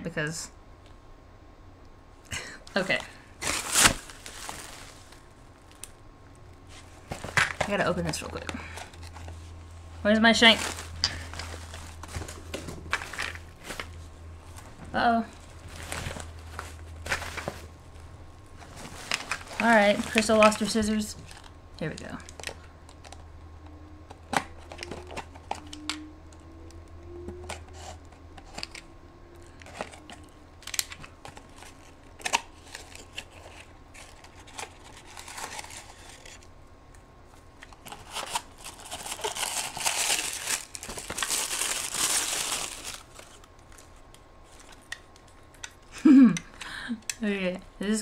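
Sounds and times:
packaging crinkling and tearing: 3.0s - 6.0s, 10.4s - 14.7s, 18.6s - 23.3s, 24.2s - 26.0s, 29.5s - 36.5s, 37.6s - 45.8s.

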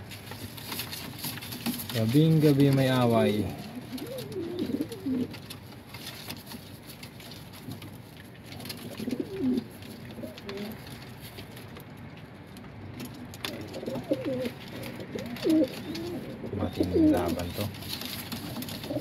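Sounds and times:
pigeons cooing: 3.0s - 5.5s, 8.6s - 11.0s, 13.0s - 19.0s.

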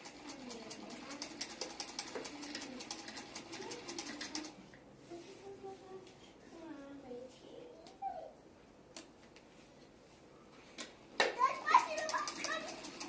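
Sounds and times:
sewing machine stitching: 0.0s - 4.6s, 11.7s - 13.0s.

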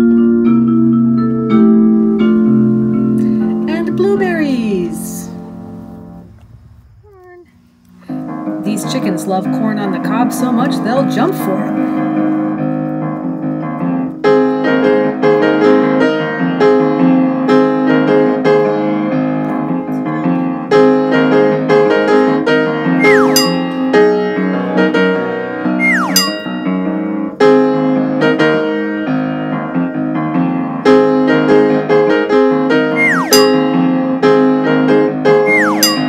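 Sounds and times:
upbeat piano music: 0.0s - 6.2s, 8.2s - 36.0s
swooping falling tones: 22.9s - 23.8s, 25.8s - 26.8s, 32.8s - 33.9s, 35.3s - 36.0s.

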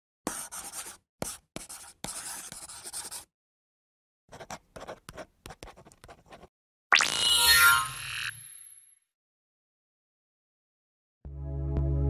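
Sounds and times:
pen writing on paper: 0.3s - 3.3s, 4.3s - 6.5s.

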